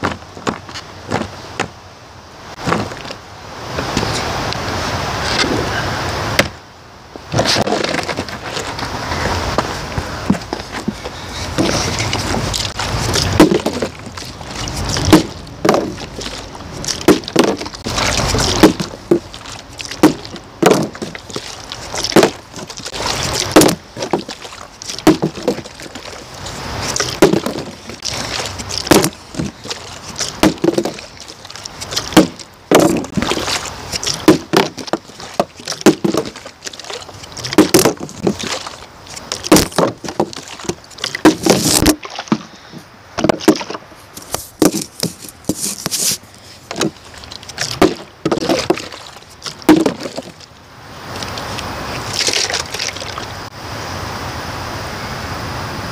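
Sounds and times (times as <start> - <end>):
plastic bottles thudding: 2.6 - 3.2, 7.4 - 8.7, 11.6 - 26.1, 26.8 - 31.1, 32.0 - 36.8, 37.4 - 47.0, 47.6 - 50.4.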